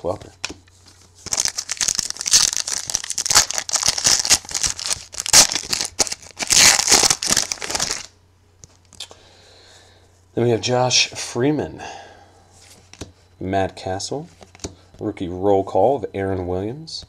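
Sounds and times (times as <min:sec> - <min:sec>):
wrapper tearing and crinkling: 0:00.9 - 0:08.1.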